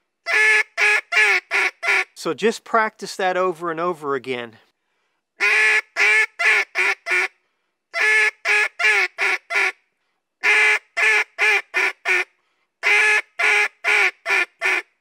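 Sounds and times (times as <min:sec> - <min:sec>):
duck call quacks: 0:00.3 - 0:02.1, 0:05.4 - 0:07.3, 0:07.9 - 0:09.8, 0:10.4 - 0:14.9.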